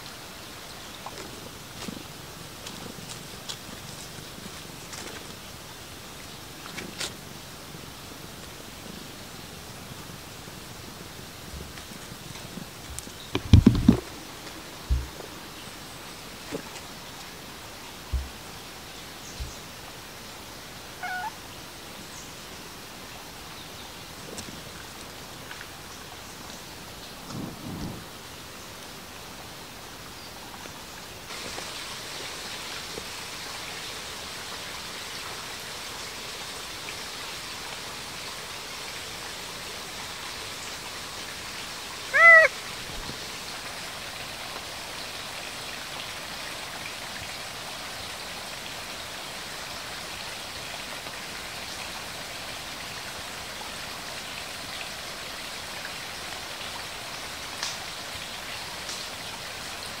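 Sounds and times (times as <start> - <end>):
rain hissing: 0.0 - 60.0
cat meowing: 21.0 - 21.4, 42.1 - 42.5.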